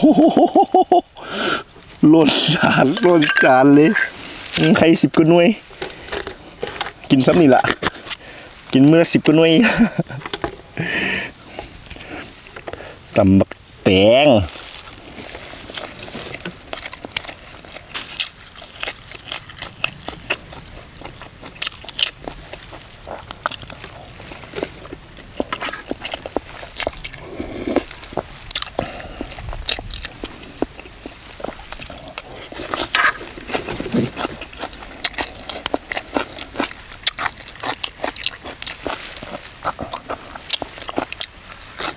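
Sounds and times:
person chewing crunchy food: 0.1s - 41.9s
wet mouth clicks: 16.4s - 41.9s.

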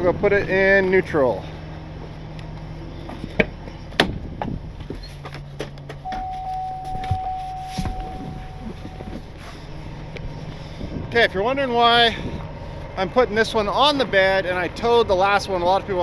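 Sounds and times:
low engine hum: 0.0s - 16.0s
truck door opening: 3.2s - 9.7s
electronic warning tone: 6.0s - 9.4s.

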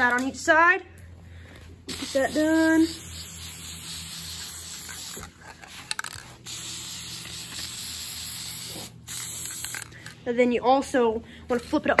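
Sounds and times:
aerosol can spraying hiss: 1.9s - 9.9s.

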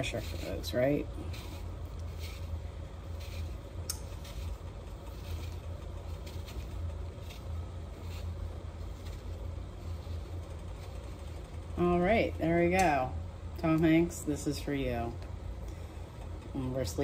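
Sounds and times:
vegetable peeler scraping apple skin: 0.0s - 11.5s
steady low hum: 0.0s - 17.0s.

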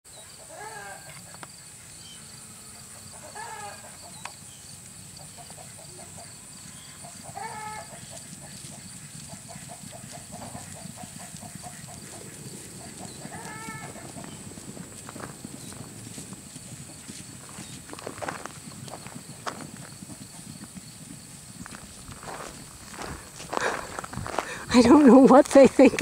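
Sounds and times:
hoofbeats on grass: 0.6s - 26.0s.

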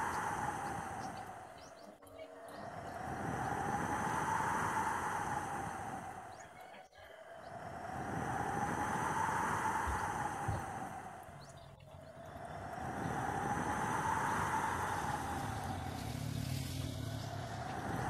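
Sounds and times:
wind rushing: 0.0s - 1.9s, 2.6s - 6.5s, 7.2s - 18.0s
rain: 8.7s - 18.0s.

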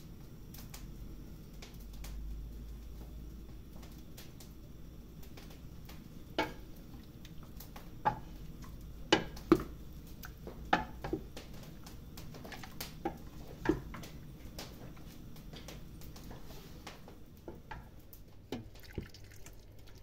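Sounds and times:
wooden spoon knocking on pot: 9.1s - 9.8s, 10.4s - 11.3s, 12.4s - 14.1s.

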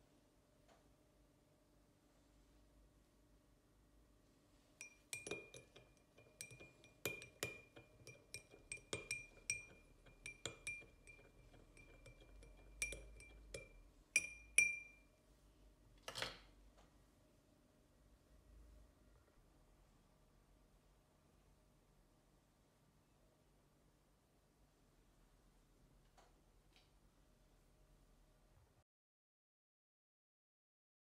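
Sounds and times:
teaspoon clinking in glass: 4.8s - 15.0s.

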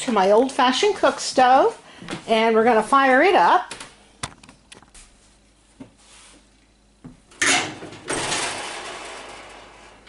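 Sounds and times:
oven door scraping clatter: 7.4s - 10.0s.

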